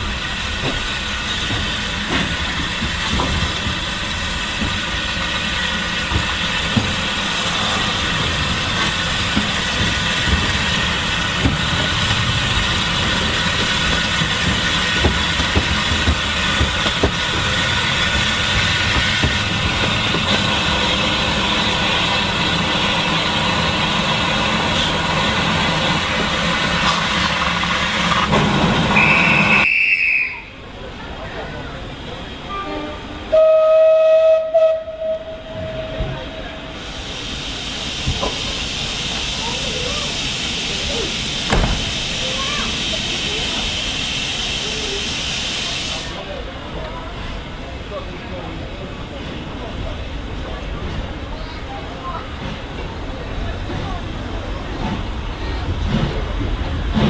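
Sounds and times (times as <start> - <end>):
high whistle: 29.0 - 30.5.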